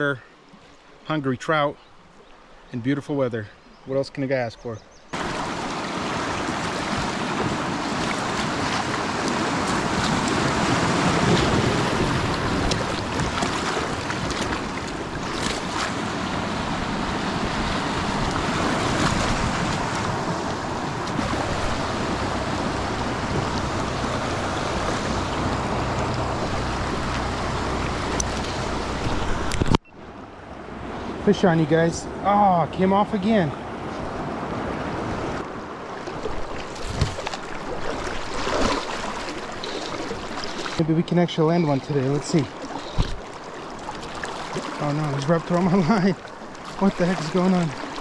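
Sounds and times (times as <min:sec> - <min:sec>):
creek water rushing: 0:05.1 - 0:48.0
wind on microphone: 0:05.2 - 0:29.8.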